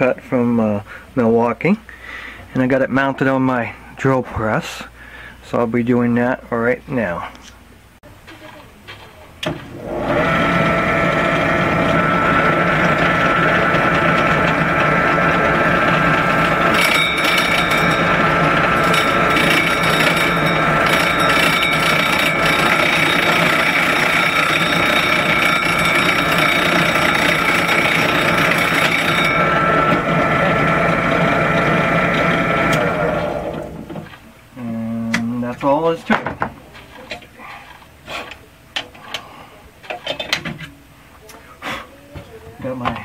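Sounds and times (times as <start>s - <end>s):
drill press motor hum: 9.4s - 34.0s
hole saw grinding through metal: 9.7s - 33.8s.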